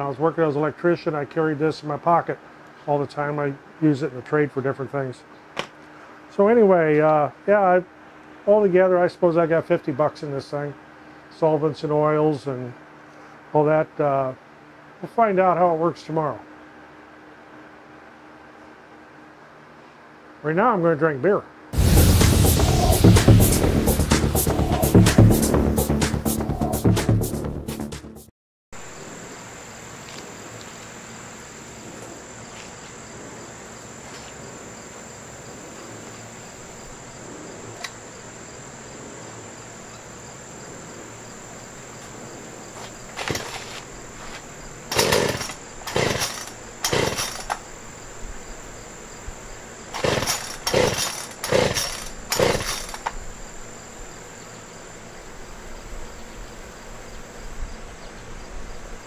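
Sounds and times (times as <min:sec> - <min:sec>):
high-pitched insect drone: 0:28.8 - 0:57.7
chainsaw pull-start bursts: 0:43.1 - 0:43.8, 0:44.9 - 0:47.6, 0:49.9 - 0:53.2.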